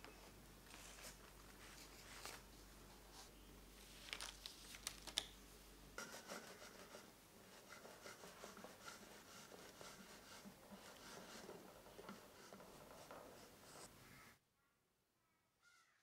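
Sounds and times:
parchment paper crinkling: 0:00.6 - 0:05.4, 0:06.2 - 0:13.9
hands rubbing on wooden board: 0:06.0 - 0:13.9.

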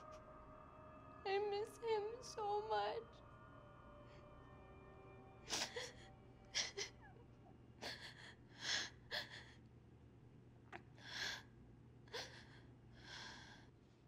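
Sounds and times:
soft background music: 0:00.0 - 0:13.8
woman crying: 0:05.4 - 0:07.2, 0:07.8 - 0:09.6.

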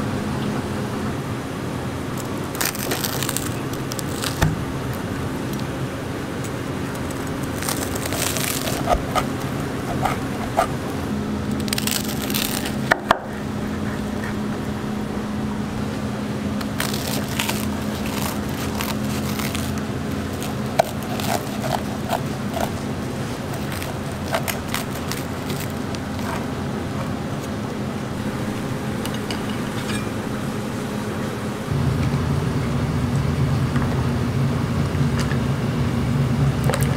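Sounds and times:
steady low hum: 0:00.0 - 0:36.9
knife crunching through toast: 0:02.2 - 0:05.7, 0:06.4 - 0:13.0, 0:16.6 - 0:27.7.

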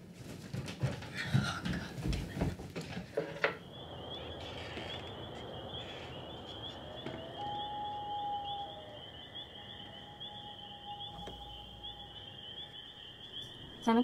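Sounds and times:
faint outdoor hum: 0:01.4 - 0:14.0
night insects chirring: 0:03.0 - 0:14.0.

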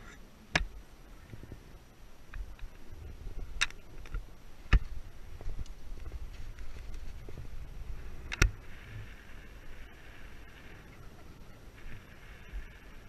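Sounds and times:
low wind rumble on microphone: 0:00.0 - 0:13.0
faint clicks: 0:02.3 - 0:07.4, 0:08.2 - 0:13.0.

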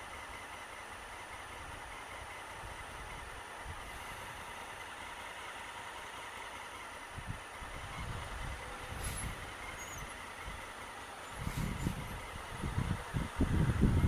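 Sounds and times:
bus diesel engine passing: 0:00.0 - 0:14.0
idling traffic rumble: 0:00.0 - 0:14.0
brief high hiss: 0:08.9 - 0:09.4.

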